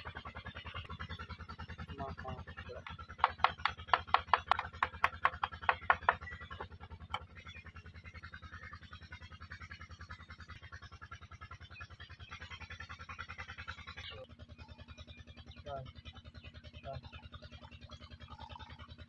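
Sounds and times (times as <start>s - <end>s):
hand tool tapping bamboo: 2.8s - 6.3s.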